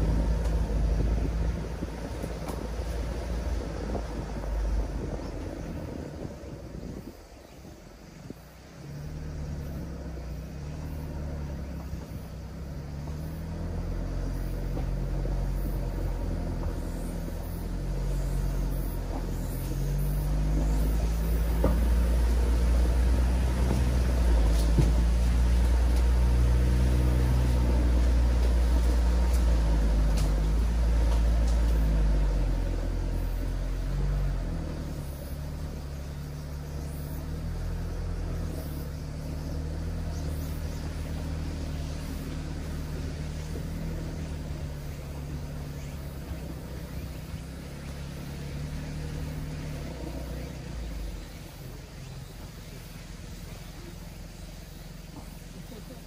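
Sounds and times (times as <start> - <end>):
diesel engine droning: 0.0 - 56.0.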